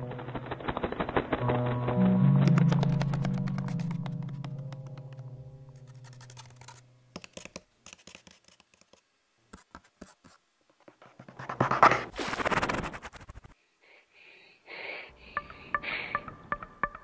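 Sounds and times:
dry scratching clicks: 0:05.8 - 0:09.1.

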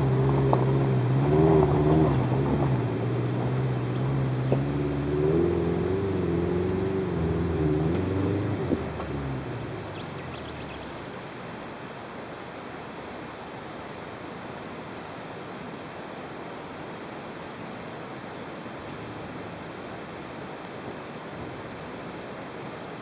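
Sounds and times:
car engine labouring uphill: 0:00.0 - 0:11.6.

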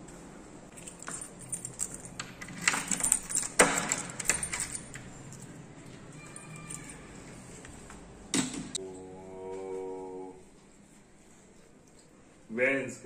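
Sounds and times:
keys jangling: 0:00.7 - 0:07.6
key clicking in door lock: 0:00.8 - 0:05.4.

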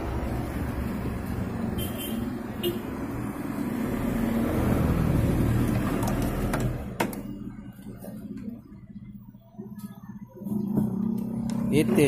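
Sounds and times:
low rumble of passing vehicle: 0:02.4 - 0:09.5.

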